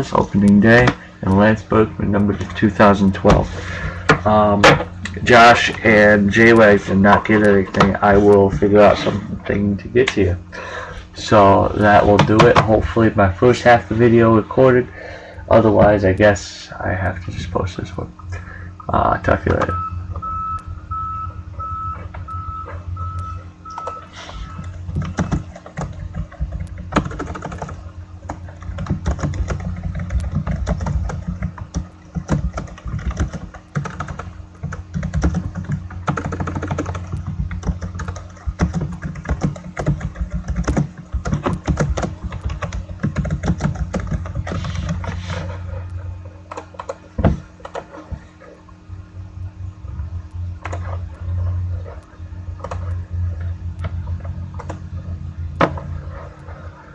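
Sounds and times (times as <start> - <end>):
low electrical hum: 0.0 - 56.9
short beeps: 19.7 - 24.7
keyboard typing and clicking: 24.6 - 45.0, 46.5 - 47.0.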